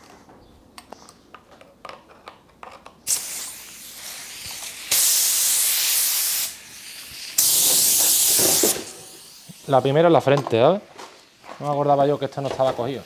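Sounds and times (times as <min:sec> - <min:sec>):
spray gun air hissing: 0:03.1 - 0:10.0.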